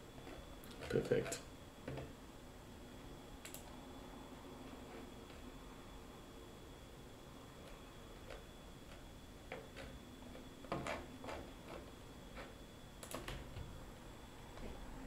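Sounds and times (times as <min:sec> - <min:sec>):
computer mouse clicks: 0:03.4 - 0:03.7.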